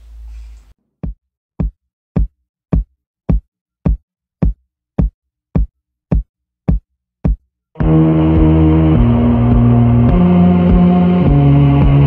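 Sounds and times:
electronic kick-drum beat: 1.0 - 12.0
low hum: 7.8 - 12.0.

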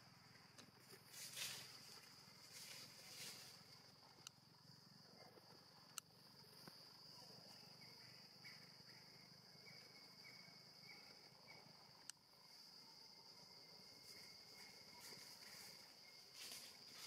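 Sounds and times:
high-pitched insect drone: 0.0 - 17.0.

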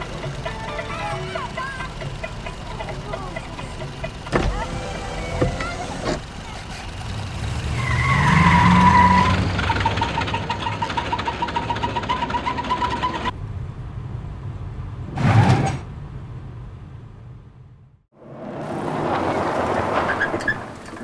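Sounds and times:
rapidly pulsing high tone: 0.0 - 6.8
car engine revving: 0.0 - 21.0
vehicle whooshing by: 4.1 - 10.8, 18.2 - 21.0.

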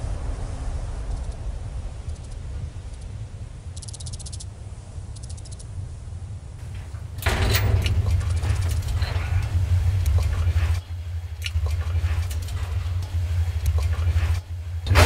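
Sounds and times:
loud noisy wash over heavy bass: 0.0 - 3.6
low steady rumble: 0.0 - 15.0
faint high ticking: 3.7 - 4.5, 5.2 - 5.7.

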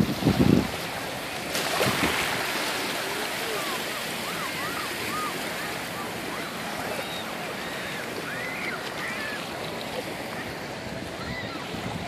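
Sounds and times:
small waves washing ashore: 0.0 - 12.0
faint distant voices: 2.5 - 12.0.

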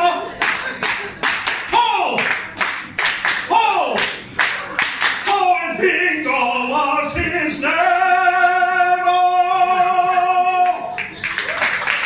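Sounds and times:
man singing a cappella: 0.0 - 0.3, 5.2 - 11.0.

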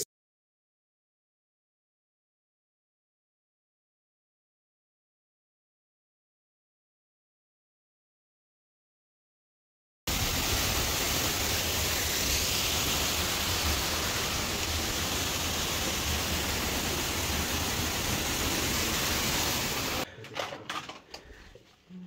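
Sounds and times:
waterfall rushing: 10.1 - 20.1.

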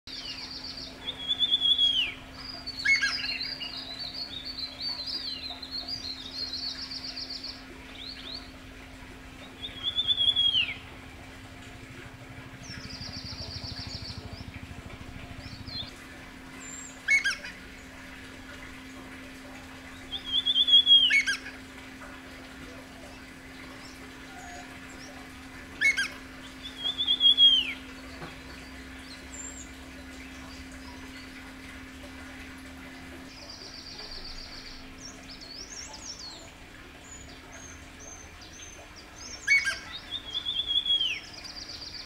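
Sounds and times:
bird trills and chirps: 0.1 - 8.5, 9.4 - 10.9, 12.4 - 18.8, 19.4 - 22.1, 23.0 - 32.3, 37.1 - 42.0
descending whistled bird call: 25.8 - 27.8, 39.4 - 41.3.

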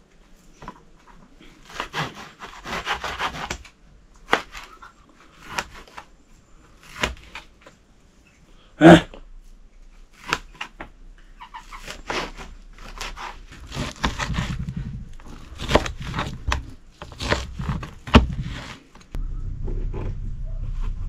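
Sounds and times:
cleaver chopping meat: 11.7 - 14.7, 15.3 - 18.7.

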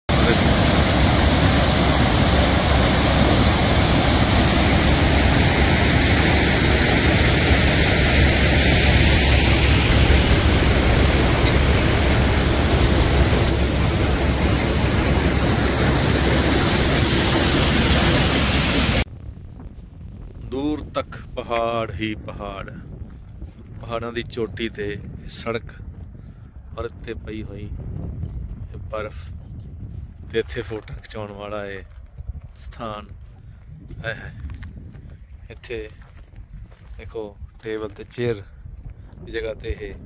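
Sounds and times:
loud steady rushing noise: 0.1 - 19.1.

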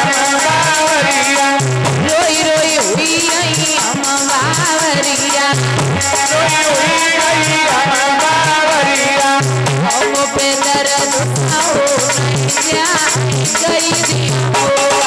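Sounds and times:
devotional folk music: 0.0 - 15.0
drum steady rhythm: 0.0 - 15.0
rattle shaking: 2.6 - 7.6, 9.9 - 14.2
wavering melody: 5.1 - 13.0.

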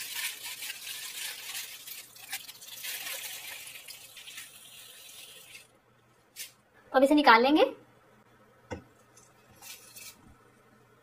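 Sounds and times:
foil and paper crinkling: 0.0 - 5.6, 9.6 - 10.2.

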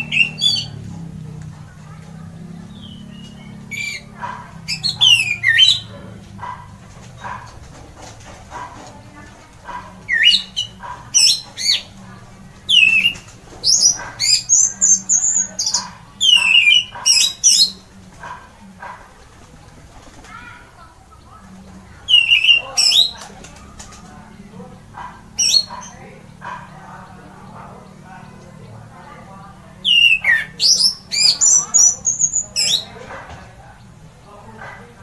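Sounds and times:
bird whistling song: 2.7 - 5.9, 10.1 - 11.9, 12.7 - 17.8, 22.1 - 23.2, 29.8 - 32.9.

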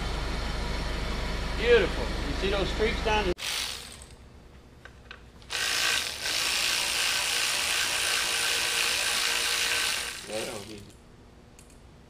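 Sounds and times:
air ratchet running: 3.4 - 4.2, 5.5 - 10.8.

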